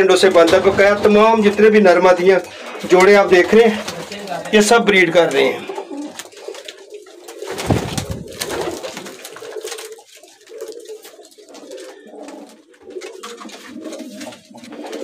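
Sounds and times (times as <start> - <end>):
pigeons cooing: 0.0 - 15.0.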